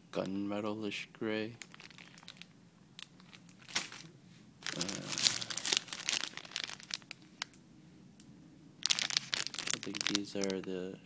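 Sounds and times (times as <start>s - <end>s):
plastic bags crinkling: 1.6s - 7.6s, 8.8s - 10.8s.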